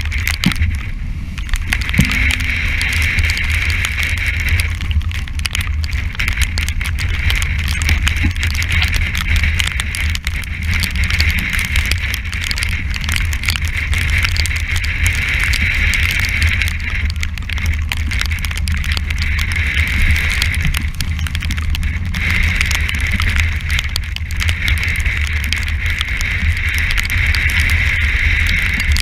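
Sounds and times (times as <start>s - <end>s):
hiss of wind and sea: 0.0s - 29.0s
wind buffeting microphone: 0.0s - 29.0s.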